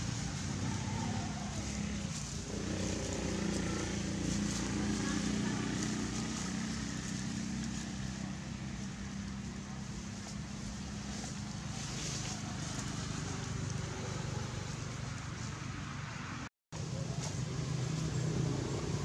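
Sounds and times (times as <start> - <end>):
indistinct voices: 0.0 - 15.0.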